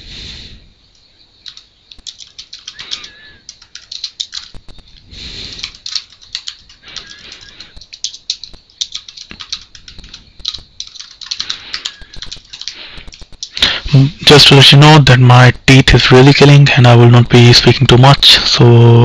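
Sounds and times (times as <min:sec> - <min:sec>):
keyboard keystroke clicks: 0:01.4 - 0:13.6.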